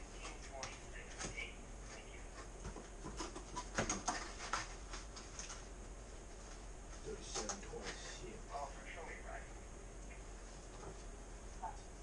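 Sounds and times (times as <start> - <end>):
low electrical hum: 0.0 - 12.0
paper rustling: 3.0 - 5.6.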